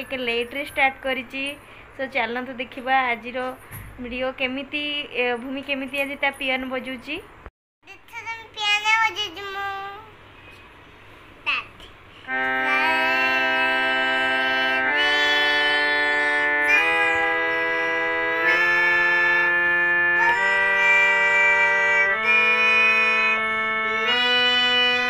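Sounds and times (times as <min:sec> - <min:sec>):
electronic keyboard chords: 0:12.3 - 0:25.0.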